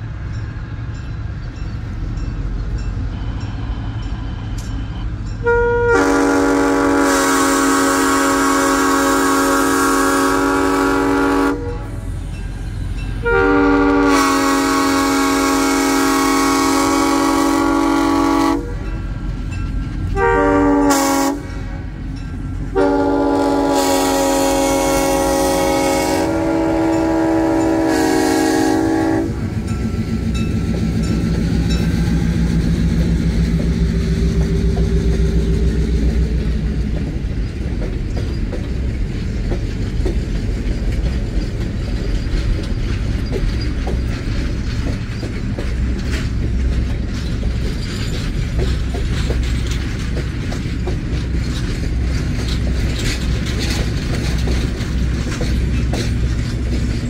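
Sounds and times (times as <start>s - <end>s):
train wheels clacking over rail joints: 0.0s - 57.0s
locomotive air horn: 5.4s - 12.2s, 13.2s - 19.0s, 20.1s - 21.9s, 22.7s - 29.4s.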